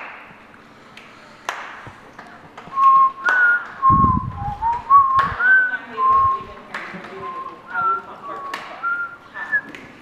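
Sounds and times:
person whistling a tune: 0:02.7 - 0:06.5, 0:07.2 - 0:09.8.

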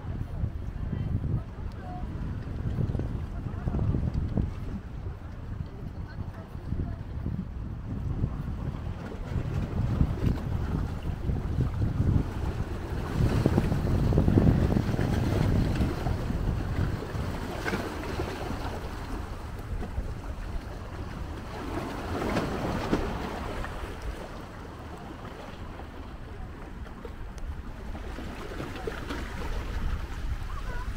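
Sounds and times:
wind rumbling on microphone: 0:00.0 - 0:30.9
waves lapping on rocky shore: 0:08.1 - 0:30.9.

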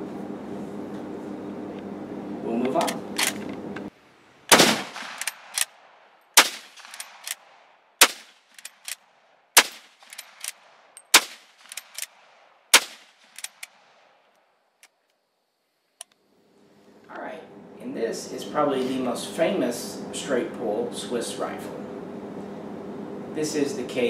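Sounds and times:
rifle shots: 0:04.5 - 0:09.0, 0:09.6 - 0:14.2
rifle bolt clacking: 0:04.9 - 0:05.7, 0:09.6 - 0:12.2, 0:12.8 - 0:13.8.

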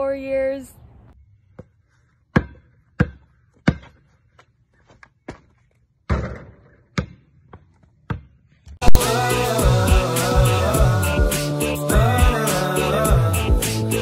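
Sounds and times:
basketball bouncing on pavement: 0:01.5 - 0:08.8
ball hitting backboard and rim: 0:02.3 - 0:04.0, 0:06.0 - 0:09.0.

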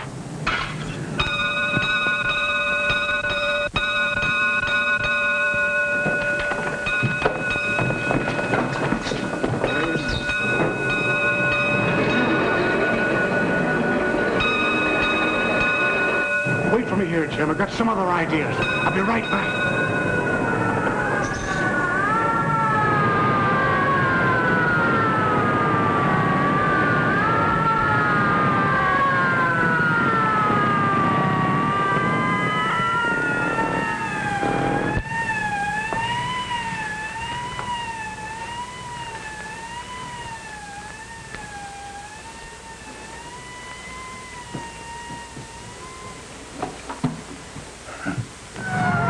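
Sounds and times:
engine rumble: 0:00.0 - 0:28.4
fire engine sirens wailing: 0:00.0 - 0:49.0.

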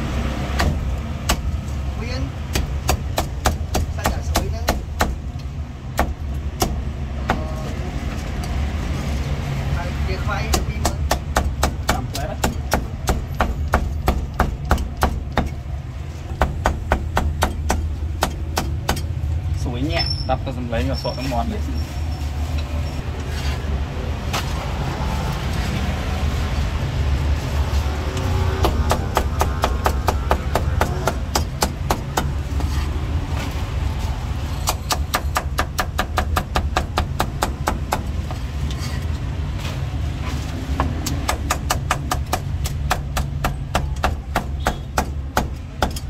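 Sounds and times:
cleaver chopping on wooden block: 0:10.5 - 0:15.6, 0:28.6 - 0:32.7.

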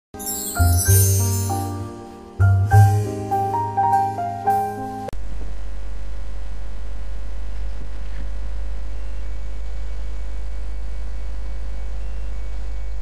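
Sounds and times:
low electrical mains hum: 0:05.2 - 0:13.0.

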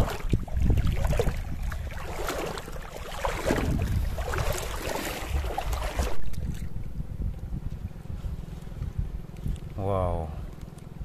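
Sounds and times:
feet splashing in shallow water: 0:00.0 - 0:06.9
wind on microphone: 0:00.0 - 0:09.9.

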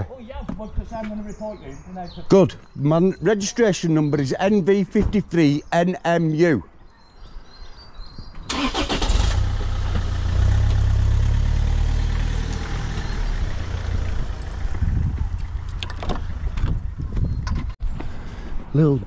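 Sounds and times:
car engine starting and rumbling: 0:08.5 - 0:17.0.

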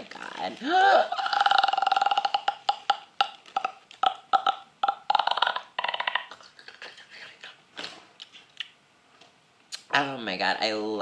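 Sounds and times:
woman's creaky vocal clicking: 0:01.1 - 0:07.6, 0:08.2 - 0:08.8.

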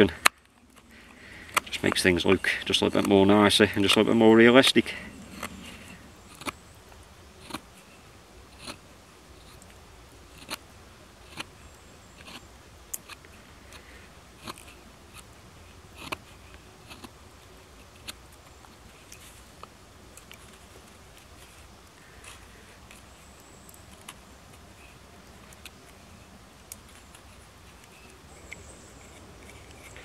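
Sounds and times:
knife carving wooden stick: 0:00.2 - 0:04.2, 0:05.2 - 0:08.8, 0:09.4 - 0:30.0.

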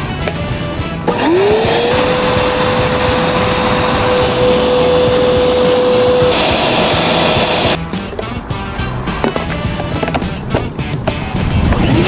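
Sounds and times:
hissy vacuum running sound: 0:01.1 - 0:07.8
vacuum motor whine: 0:01.1 - 0:07.8.

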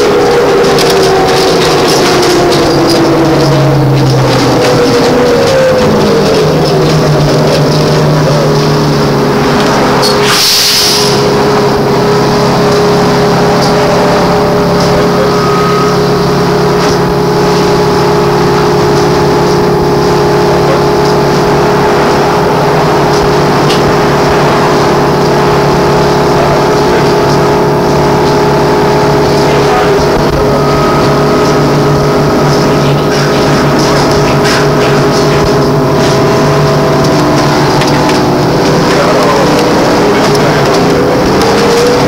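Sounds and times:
electric hum: 0:10.9 - 0:42.0.

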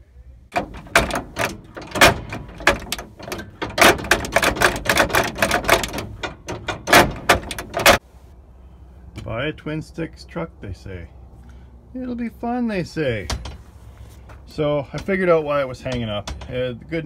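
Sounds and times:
metallic clanking and rattling: 0:00.5 - 0:08.0, 0:15.8 - 0:16.7.

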